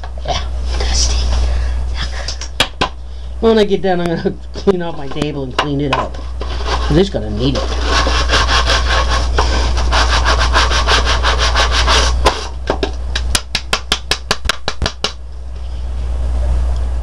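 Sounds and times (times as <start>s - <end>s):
brush scrubbing ribbed plastic: 6.2s - 12.4s.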